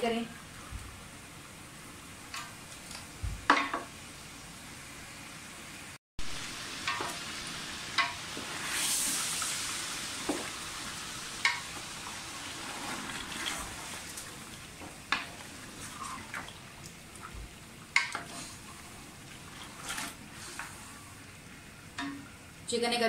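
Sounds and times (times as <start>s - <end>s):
chicken sizzling in oil: 3.8s - 22.5s
wooden spoon scraping a pot: 18.0s - 20.9s.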